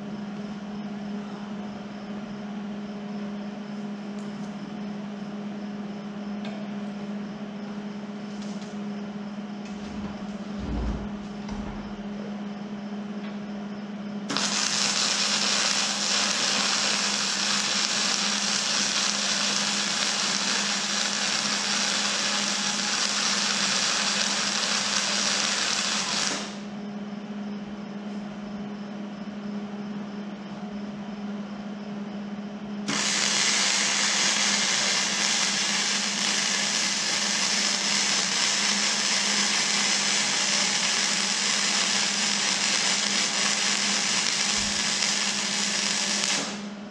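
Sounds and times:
steady low hum: 0.0s - 46.9s
arc welding crackle: 14.3s - 26.6s, 32.9s - 46.8s.

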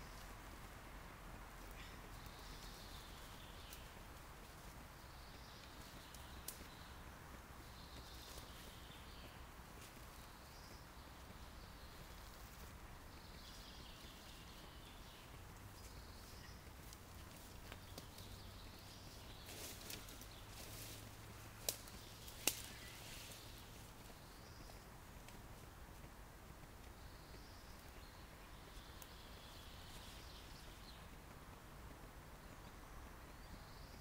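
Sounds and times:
distant birdsong: 1.6s - 25.7s, 26.5s - 34.0s.

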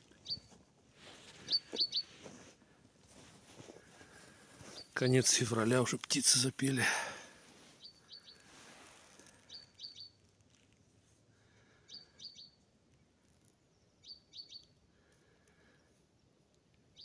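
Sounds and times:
bird singing: 0.1s - 0.5s, 1.4s - 2.2s, 7.8s - 8.5s, 9.4s - 10.2s, 11.8s - 12.6s, 13.6s - 14.8s.

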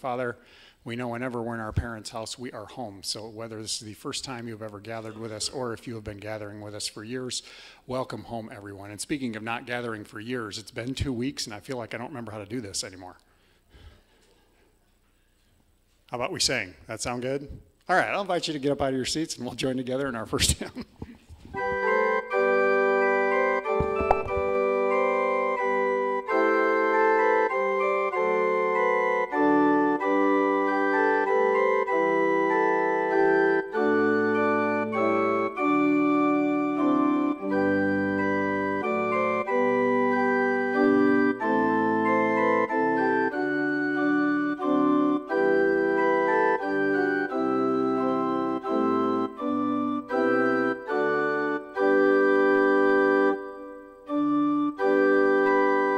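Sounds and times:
church organ playing a hymn: 21.5s - 55.9s.

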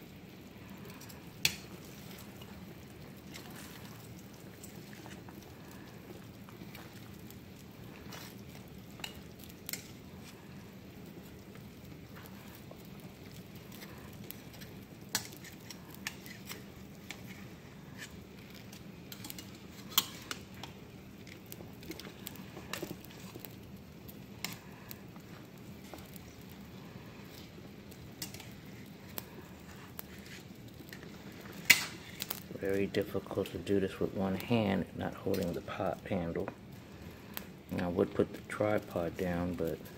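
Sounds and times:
water boiling: 0.0s - 39.9s
metal tongs scraping metal pot: 13.7s - 18.2s, 19.1s - 20.8s, 28.2s - 32.4s.

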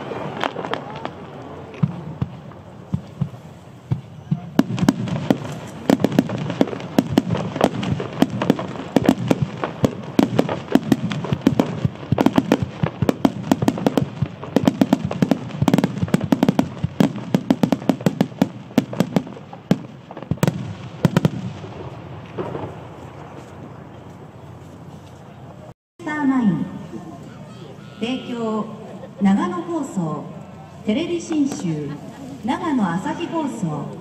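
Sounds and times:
fireworks launching and bursting: 0.0s - 23.8s.

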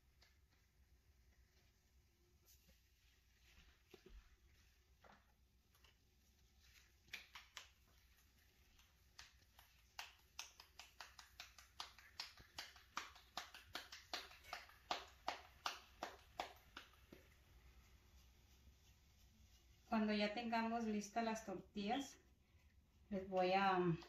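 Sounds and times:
hands patting tortilla dough: 0.0s - 21.2s.

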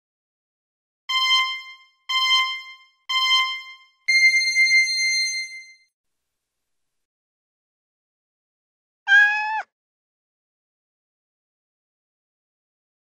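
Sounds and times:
electronic timer beeps: 1.1s - 5.8s.

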